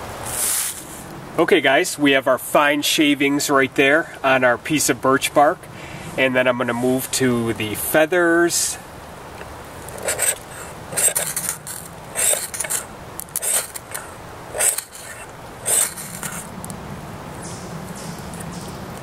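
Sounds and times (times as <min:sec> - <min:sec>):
knife blade shaving wood: 0:09.8 - 0:16.5.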